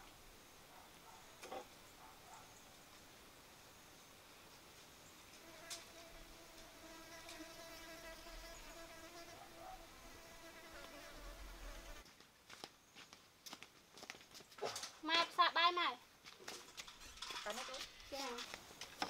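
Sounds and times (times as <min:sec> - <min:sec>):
fly buzzing: 0:05.4 - 0:12.0.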